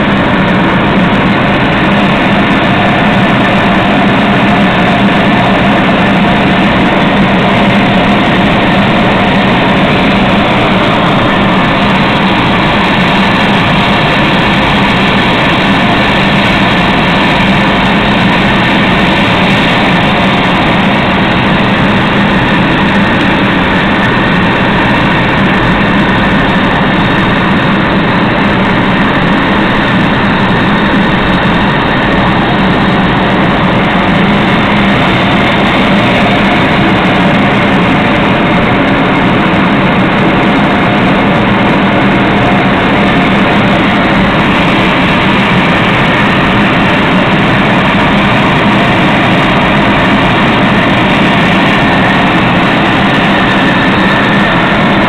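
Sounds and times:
jet engine and airflow noise: 0.0s - 55.0s
low hum: 0.0s - 55.0s.

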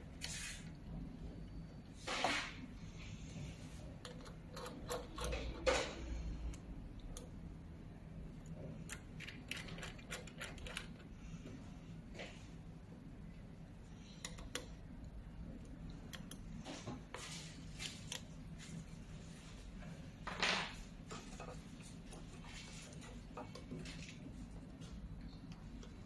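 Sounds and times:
steady low hum: 0.0s - 26.0s
small metal clicks and scrapes: 4.0s - 7.4s, 8.4s - 11.2s, 14.0s - 14.8s.

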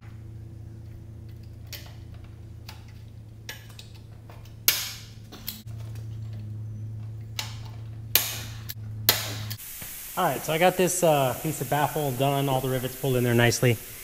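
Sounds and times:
steady low hum: 0.0s - 14.0s
rivet snapping: 1.2s - 5.7s
short hiss: 9.6s - 12.6s.

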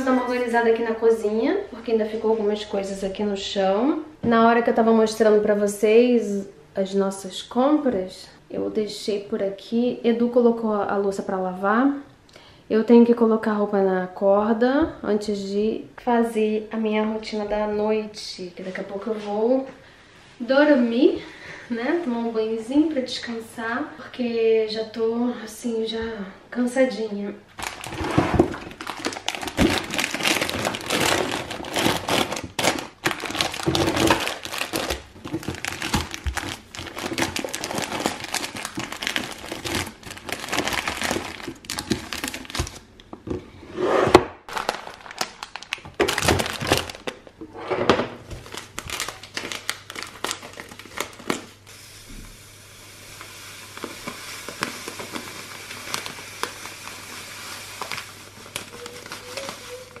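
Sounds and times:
plastic packets crinkling: 27.6s - 43.0s, 44.5s - 47.4s, 48.3s - 51.6s, 53.8s - 60.0s.

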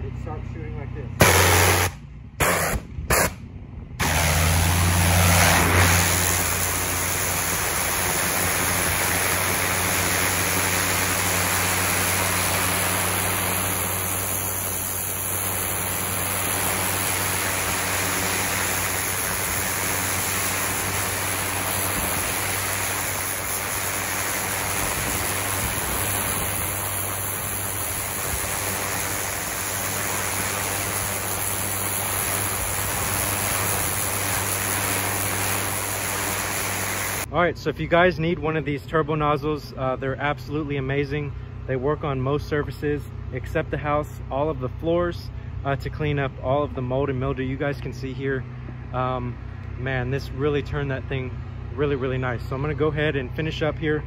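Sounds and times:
low motor hum: 0.0s - 37.3s
pressure washer spray hissing: 1.2s - 3.4s, 4.0s - 37.3s.

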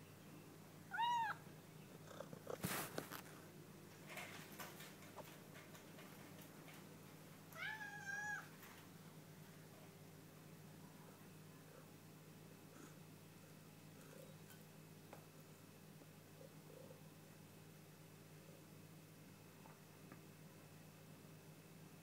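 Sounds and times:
cat meowing: 0.9s - 1.4s, 7.6s - 8.5s.

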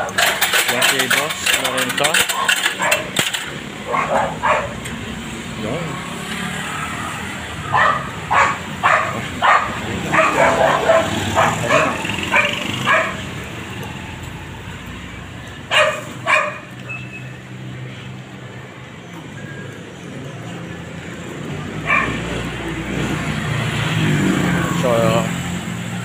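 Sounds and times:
street traffic hum: 0.0s - 26.0s
dog barking: 2.2s - 3.2s, 3.8s - 4.8s, 7.6s - 13.3s, 15.7s - 16.7s, 21.8s - 22.3s.

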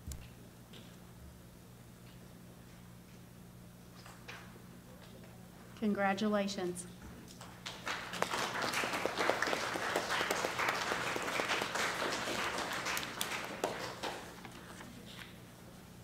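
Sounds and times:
audience applauding: 7.6s - 14.6s.

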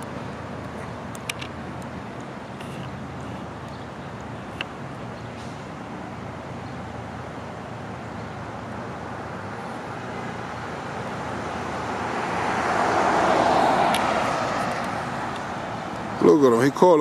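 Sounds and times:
road noise: 0.0s - 17.0s
vehicle passing close: 9.8s - 16.4s.

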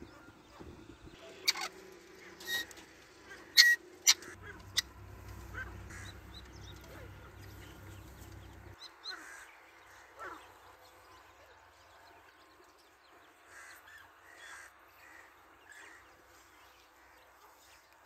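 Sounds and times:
faint low hum: 0.0s - 18.0s
francolin harsh calls: 3.4s - 10.5s.

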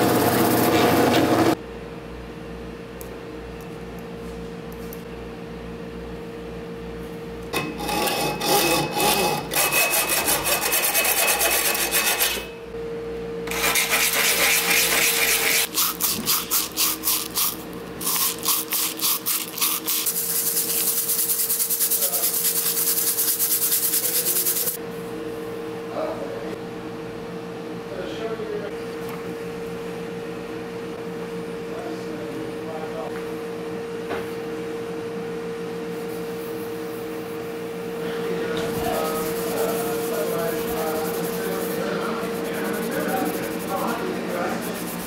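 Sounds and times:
brass rod rubbed on sandpaper: 8.4s - 12.4s, 13.5s - 24.8s, 38.8s - 45.0s.

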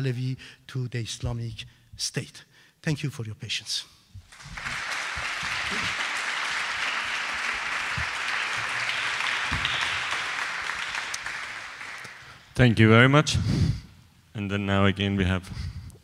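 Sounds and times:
audience applauding: 4.3s - 12.6s.

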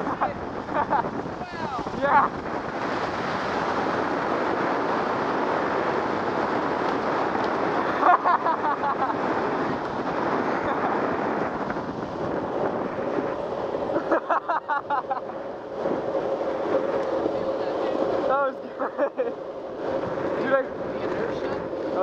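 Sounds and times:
skateboard wheels rolling on asphalt: 0.0s - 22.0s
wind rushing over microphone: 0.0s - 22.0s.

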